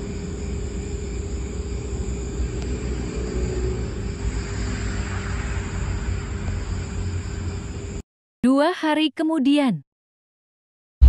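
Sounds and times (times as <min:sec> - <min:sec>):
faint constant hum: 0:00.0 - 0:08.0.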